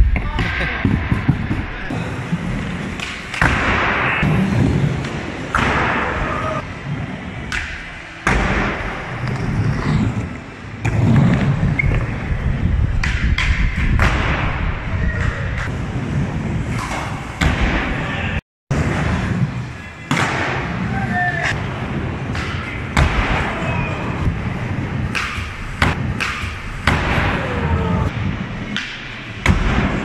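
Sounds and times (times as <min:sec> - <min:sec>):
skateboard wheels rolling on concrete: 0:00.0 - 0:30.0
skateboard clacks and thuds: 0:00.1 - 0:01.9.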